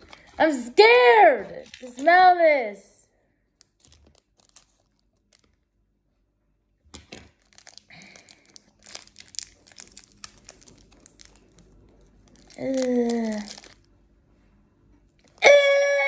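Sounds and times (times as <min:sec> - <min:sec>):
plastic wrapper crinkling: 0:01.5 - 0:02.2, 0:03.6 - 0:05.7, 0:06.9 - 0:14.0.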